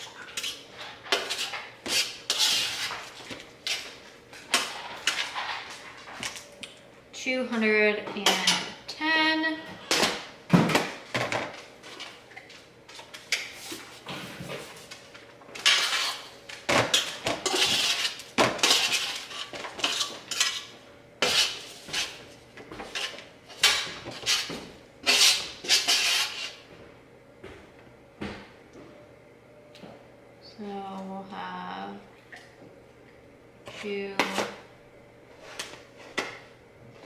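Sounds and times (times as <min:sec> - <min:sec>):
fork scraping metal baking sheet: 0:00.3 - 0:03.9, 0:15.6 - 0:16.3, 0:16.9 - 0:22.2, 0:22.8 - 0:26.6.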